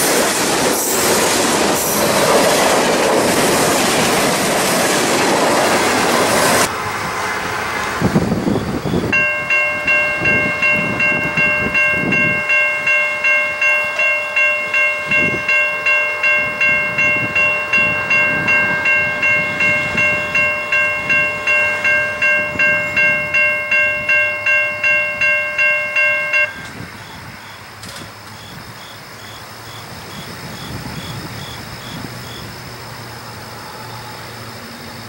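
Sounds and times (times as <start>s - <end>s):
low train rumble: 0.0s - 35.0s
crossing bell ringing: 8.4s - 27.8s.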